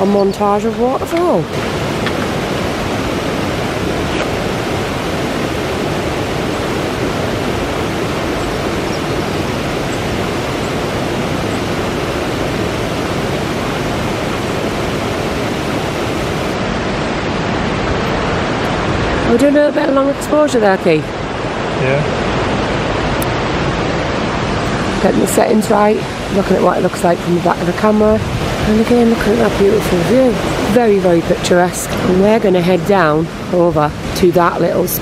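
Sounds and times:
stream rushing over rocks: 0.0s - 35.0s.

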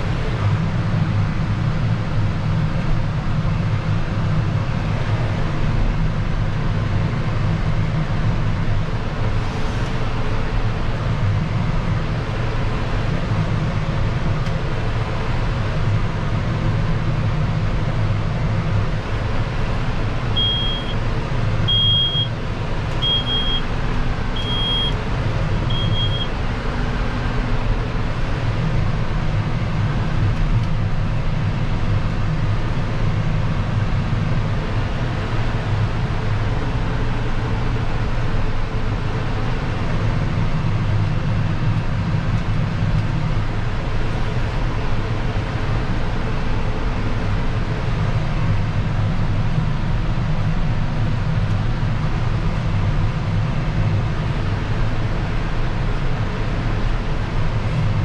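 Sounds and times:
tractor diesel engine drone: 0.0s - 58.0s
high beeper: 20.4s - 21.0s, 21.7s - 22.3s, 23.0s - 23.7s, 24.4s - 25.0s, 25.7s - 26.3s.

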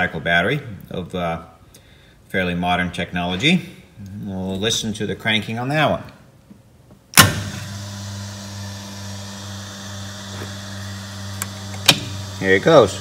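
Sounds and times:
fuel pump humming: 7.2s - 13.0s.

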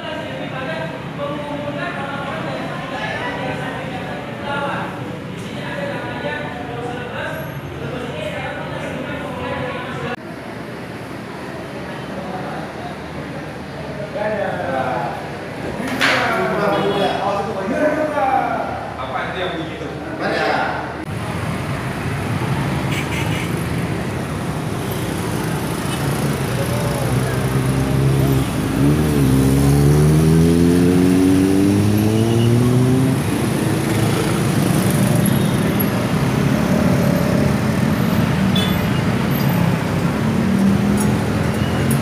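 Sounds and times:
street traffic noise: 0.0s - 42.0s
vehicle engine accelerating past: 26.8s - 35.2s.

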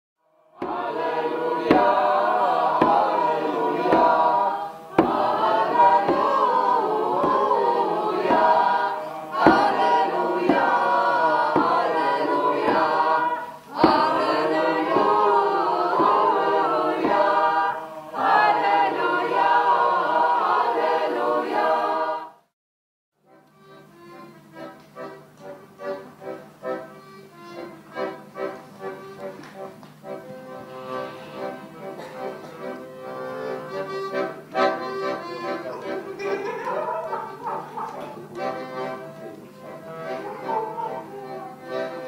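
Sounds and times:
group singing unaccompanied: 0.4s - 22.4s, 30.1s - 42.0s
sharp knocks: 5.0s - 6.4s, 9.4s - 10.7s.

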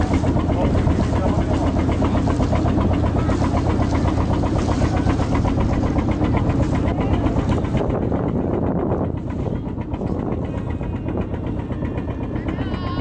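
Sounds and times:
boat engine droning and knocking: 0.0s - 13.0s.

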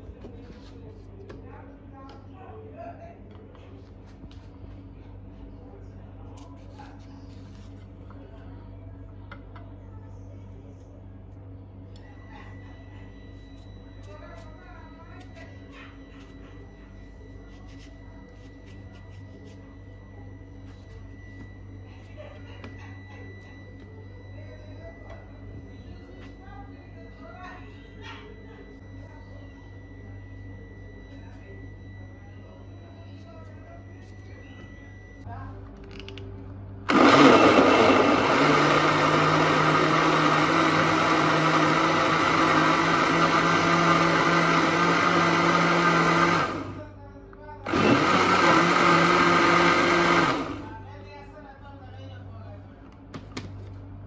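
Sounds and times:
steady low hum: 0.0s - 38.2s
knife scraping melon: 17.4s - 19.7s
blender chopping fruit: 36.9s - 46.8s, 47.7s - 50.7s.

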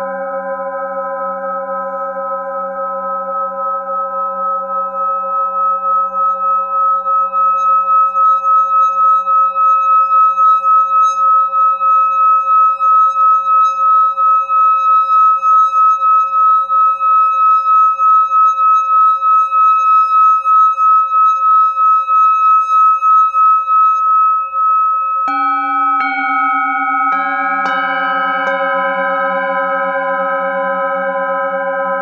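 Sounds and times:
singing bowl sustained high tone: 0.0s - 32.0s
struck bowl deep ringing: 23.3s - 32.0s.

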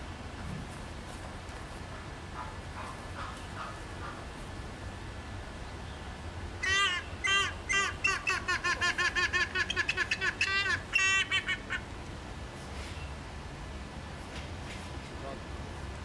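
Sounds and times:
hornbill calling: 6.6s - 11.9s.

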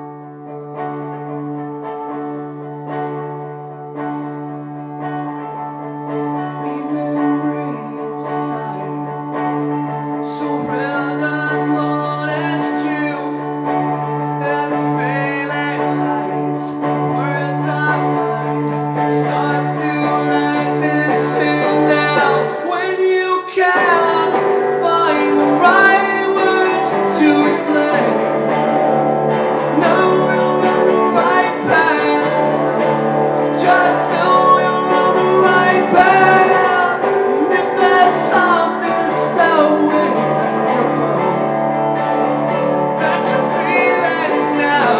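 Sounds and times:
electric guitar chords: 0.0s - 44.9s
man singing rock song: 6.6s - 44.9s.

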